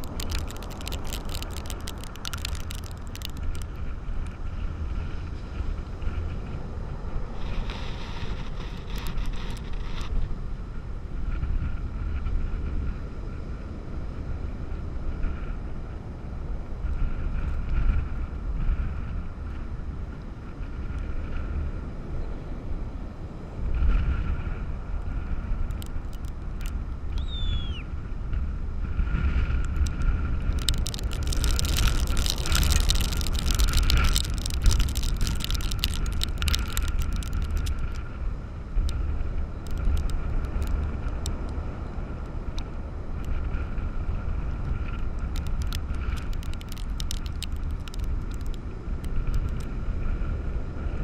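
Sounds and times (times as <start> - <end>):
gusty wind buffeting microphone: 0.0 - 51.0
surf breaking on beach: 28.9 - 38.2.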